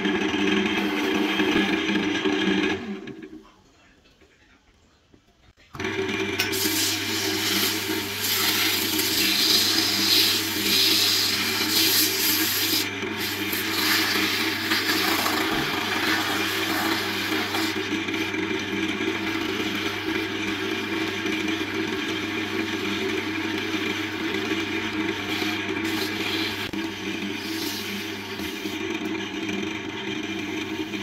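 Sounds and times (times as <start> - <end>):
wood lathe humming: 0.0 - 3.3, 5.8 - 31.0
sandpaper rubbing spinning wood: 6.6 - 17.9, 22.4 - 28.9, 30.3 - 31.0.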